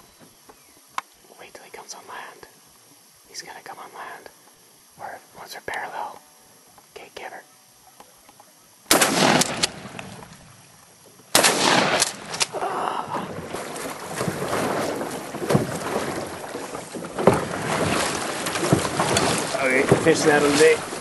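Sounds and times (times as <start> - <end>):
shotgun blasts: 8.9 - 10.3, 11.3 - 12.6.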